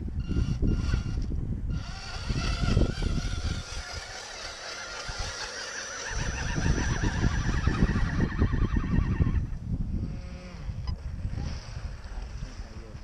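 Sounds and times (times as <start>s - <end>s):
high whine of electric motors: 0.0s - 9.5s
wind rumble on microphone: 0.0s - 13.0s.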